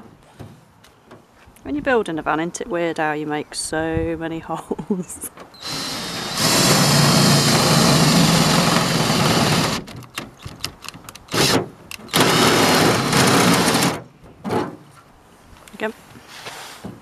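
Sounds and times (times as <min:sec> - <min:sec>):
cordless drill boring through metal: 0:05.6 - 0:10.0, 0:12.1 - 0:13.9.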